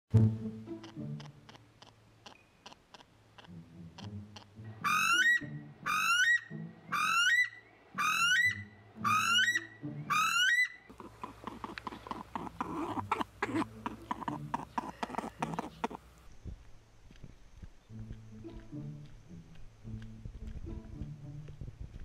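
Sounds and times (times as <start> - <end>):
weka shrill whistled calls: 4.8 - 10.9.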